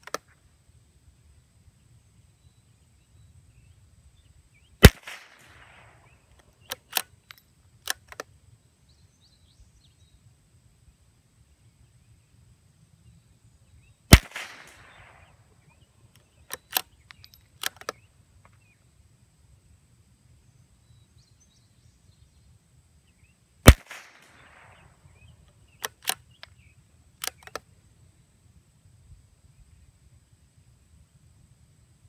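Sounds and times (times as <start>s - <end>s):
rifle shot crack: 4.8s - 7.0s, 14.1s - 15.4s, 23.6s - 26.2s
rifle bolt clicks: 4.8s - 8.3s, 16.2s - 18.0s, 25.8s - 26.6s, 27.2s - 27.6s.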